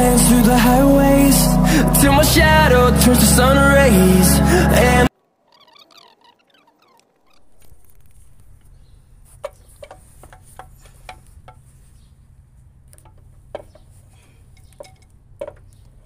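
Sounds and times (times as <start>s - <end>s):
steady low rumble: 0.0s - 5.1s.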